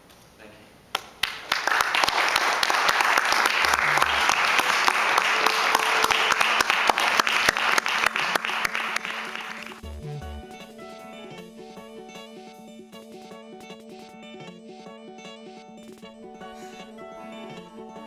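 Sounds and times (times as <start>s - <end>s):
audience applauding: 1.0s - 9.8s
guitar music: 9.0s - 18.0s.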